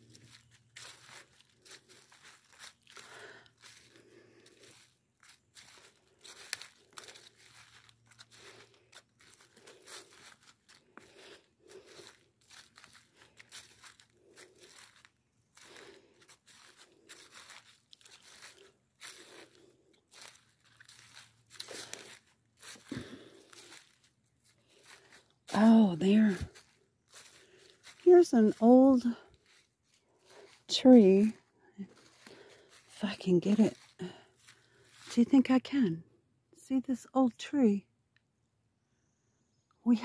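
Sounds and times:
footsteps crunching dry leaves: 0:00.0 - 0:35.3.

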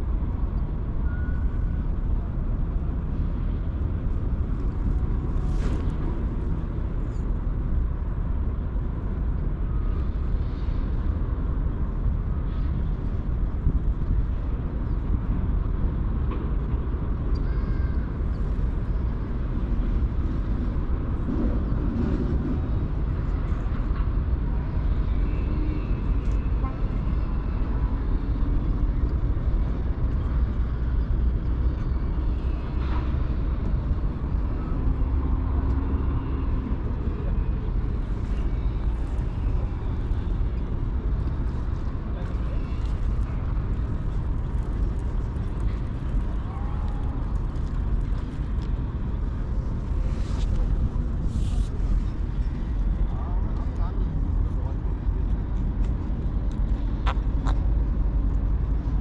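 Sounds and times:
low outdoor rumble: 0:00.0 - 0:59.0.

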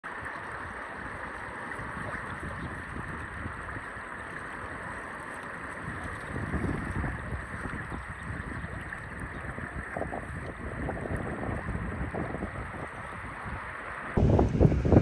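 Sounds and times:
wind buffeting microphone: 0:00.6 - 0:05.0, 0:05.7 - 0:15.0
river water rushing: 0:12.6 - 0:15.0.

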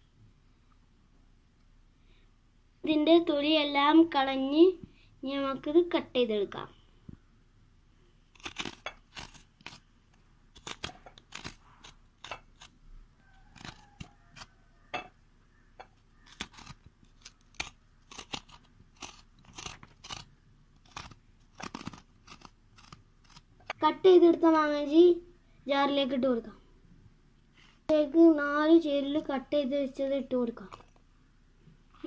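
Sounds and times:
knife scraping root skin: 0:08.3 - 0:12.8, 0:13.4 - 0:14.5, 0:16.2 - 0:23.5.

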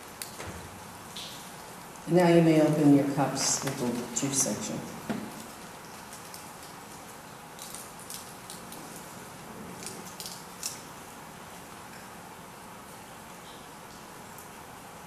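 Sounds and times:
plastic film crackling: 0:03.3 - 0:10.9.

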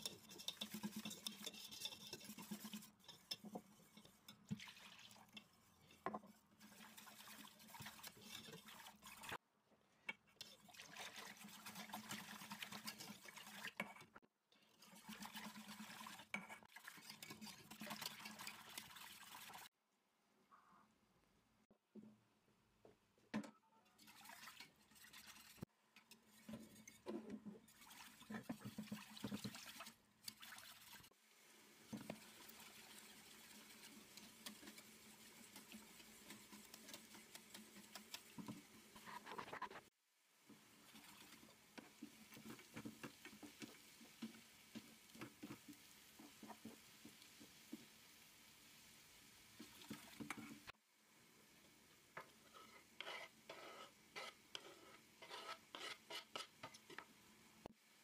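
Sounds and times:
whisk clicking against pot: 0:00.0 - 0:08.8, 0:32.0 - 0:39.1
whisk stirring soup in pot: 0:00.0 - 0:09.4, 0:10.1 - 0:19.7, 0:23.9 - 0:31.2, 0:31.9 - 0:48.2, 0:49.6 - 0:50.8, 0:52.2 - 0:57.2
liquid sloshing: 0:24.0 - 0:25.6.

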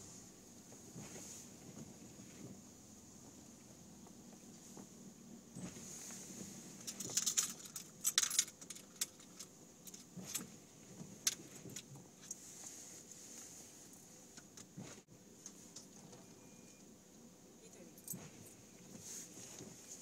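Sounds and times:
small metal objects jingling: 0:06.8 - 0:10.4.

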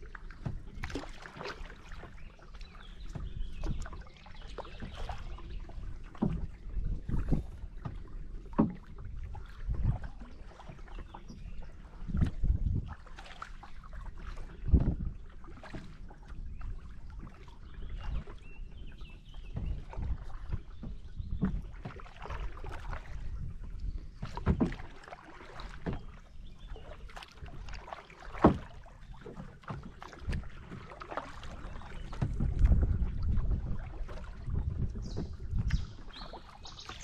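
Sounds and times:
paddle splashing in water: 0:00.0 - 0:37.0.

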